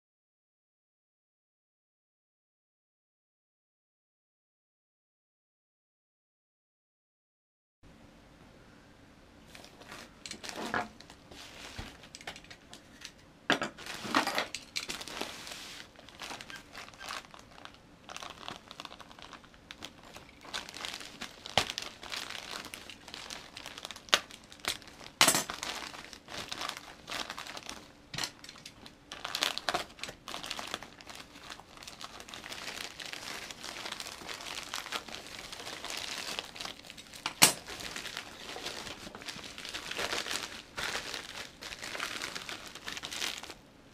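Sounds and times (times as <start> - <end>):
plastic bag crinkling and tearing: 9.5 - 43.6.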